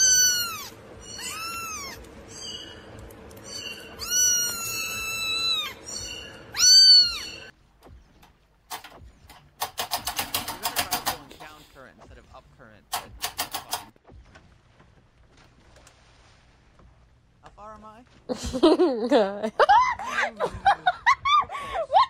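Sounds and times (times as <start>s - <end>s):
kitten meowing: 0.0s - 2.0s, 3.6s - 7.5s.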